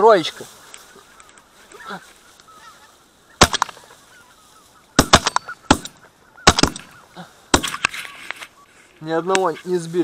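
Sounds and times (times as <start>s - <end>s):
geese honking faintly: 0.1s - 10.0s
shotgun shots: 3.4s - 3.8s, 5.0s - 6.9s, 7.5s - 7.9s.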